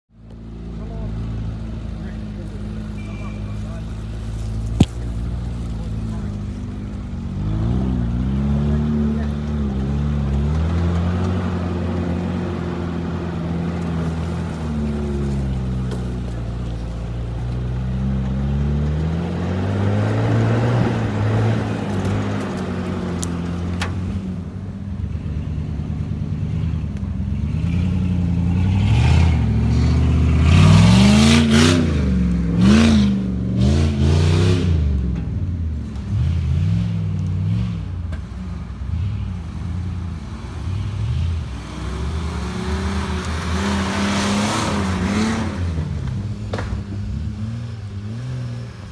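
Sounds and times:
suv engines revving: 0:00.2 - 0:48.9.

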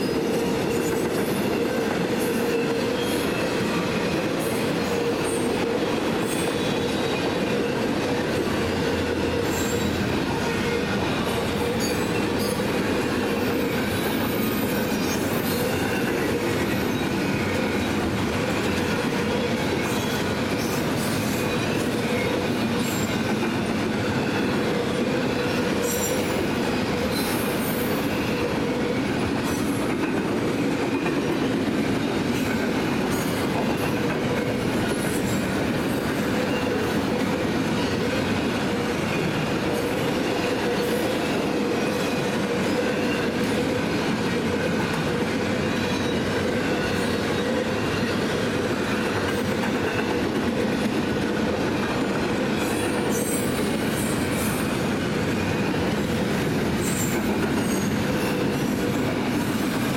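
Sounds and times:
freight train rumbling past: 0:00.0 - 0:59.9
high-pitched wheel squeals: 0:08.9 - 0:11.0.

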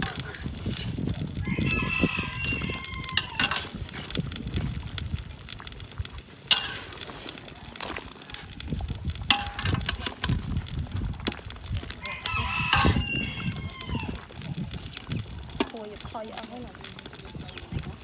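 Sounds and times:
rooster crowing: 0:01.4 - 0:03.7, 0:12.0 - 0:14.3
metal spatula scraping a wok: 0:03.1 - 0:04.1, 0:06.5 - 0:07.4.

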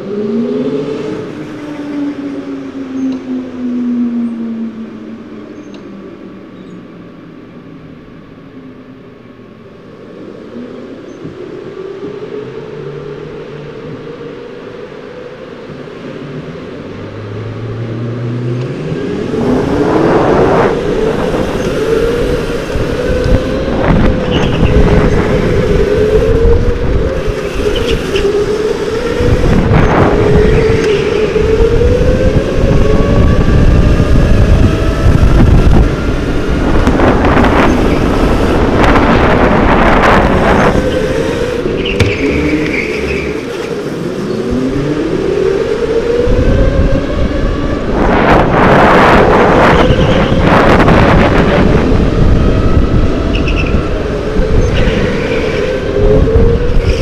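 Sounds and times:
go-kart motor accelerating: 0:17.3 - 0:57.0.

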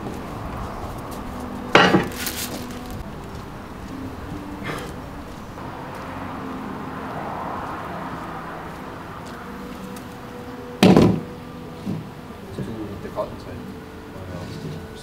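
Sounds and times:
outdoor background noise: 0:00.0 - 0:15.0.

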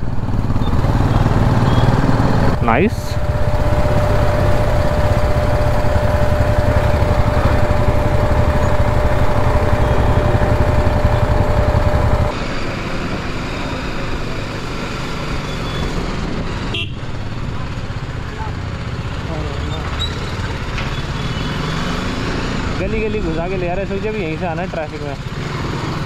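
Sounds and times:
motorcycle engine rumble: 0:00.0 - 0:12.3
thin steady whine: 0:02.4 - 0:14.4.

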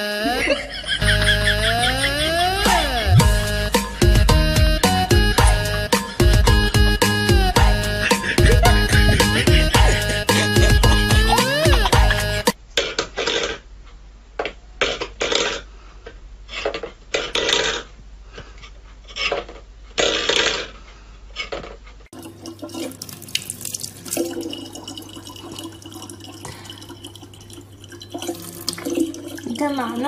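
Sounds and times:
tap water running into plastic bottle: 0:22.2 - 0:30.0.

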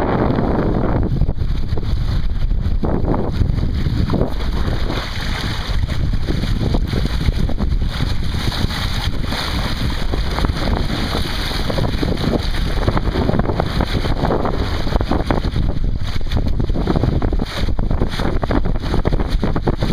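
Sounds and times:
water rushing along hull: 0:00.0 - 0:19.9
wind buffeting microphone: 0:00.0 - 0:19.9.

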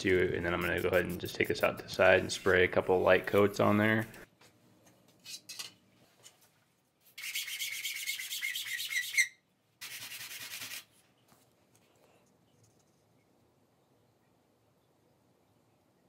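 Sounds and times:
plastic parts sanding on sandpaper: 0:00.0 - 0:03.6, 0:07.1 - 0:11.0.

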